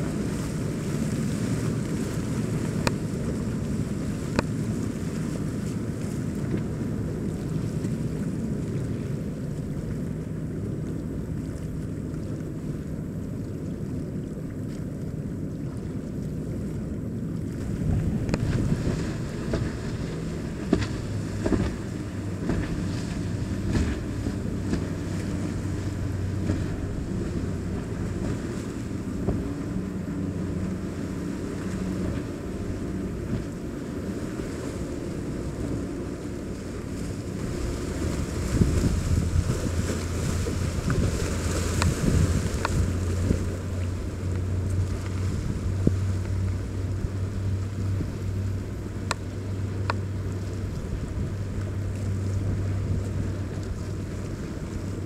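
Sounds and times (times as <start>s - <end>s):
motorboat engines droning: 0.0s - 55.0s
wind noise on microphone: 17.5s - 30.9s, 36.8s - 55.0s.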